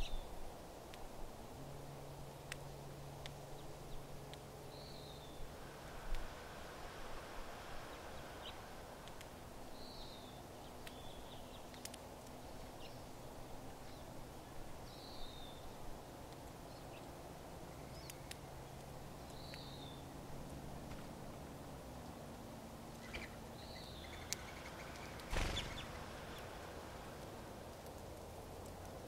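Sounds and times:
finch chirping: 23.0 - 26.4.

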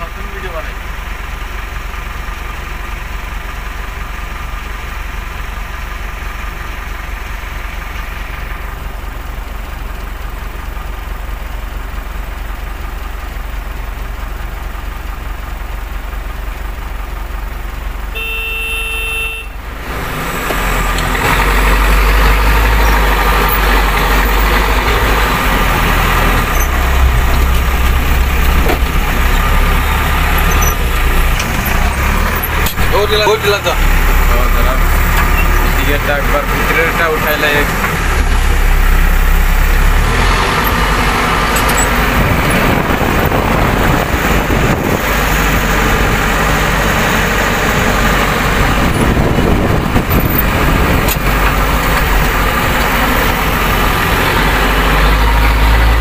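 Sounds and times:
diesel engine idling: 0.0 - 56.0
vehicle horn: 18.1 - 19.6
engine revving under load: 18.2 - 56.0.

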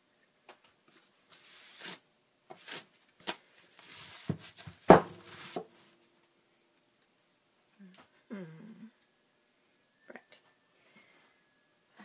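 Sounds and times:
books rustling and sliding: 2.6 - 5.8.

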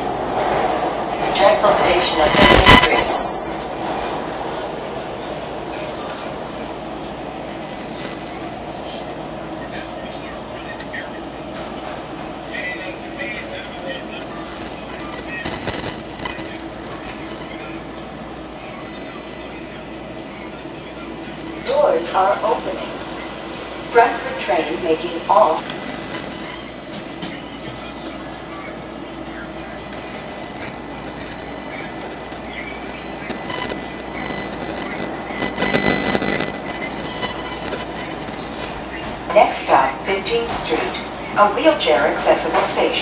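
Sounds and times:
subway car running on track: 0.0 - 2.2, 3.2 - 6.4
high whine: 0.0 - 41.9.

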